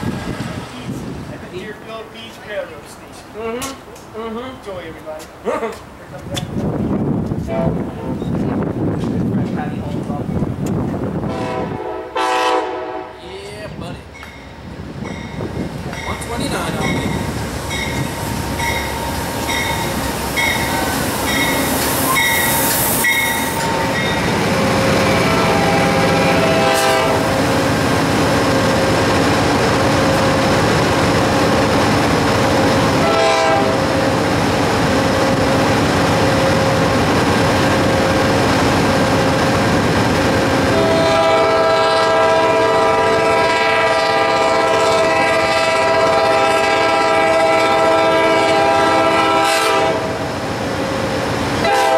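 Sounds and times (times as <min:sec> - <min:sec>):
train passing: 0:00.0 - 0:51.9
locomotive horn blasts: 0:11.3 - 0:13.2, 0:25.0 - 0:27.4, 0:33.0 - 0:33.9, 0:40.7 - 0:50.2, 0:51.6 - 0:51.9
crossing bell ringing: 0:14.2 - 0:24.4.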